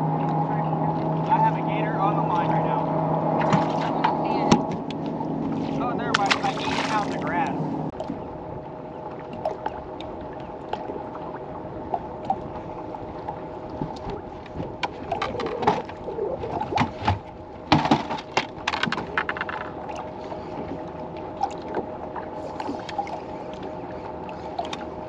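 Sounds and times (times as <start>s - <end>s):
knocks and clatter on deck: 16.7s - 19.7s.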